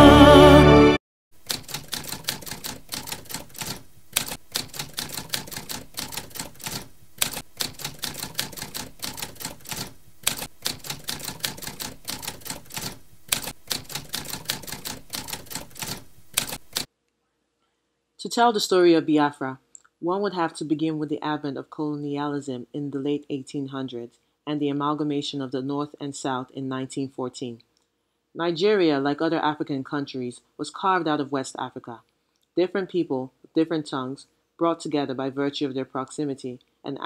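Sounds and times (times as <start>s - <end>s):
music: 0.0s - 1.0s
typewriter keys striking: 1.4s - 16.9s.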